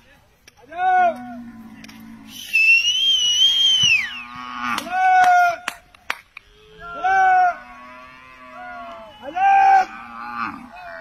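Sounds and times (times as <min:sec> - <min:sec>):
loud long whistle: 0:02.3 - 0:04.2, 0:08.9 - 0:09.8.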